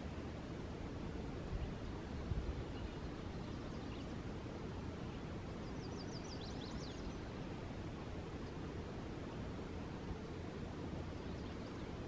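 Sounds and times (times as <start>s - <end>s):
songbird singing: 0.0s - 12.0s
faint bird chirps: 1.6s - 4.2s, 5.0s - 7.3s, 11.0s - 12.0s.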